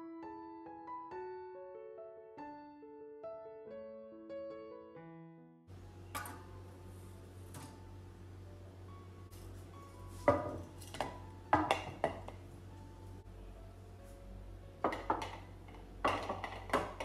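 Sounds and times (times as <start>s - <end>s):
low steady hum: 5.7s - 17.0s
kitchen items clinking and knocking: 10.2s - 12.5s, 14.8s - 17.0s.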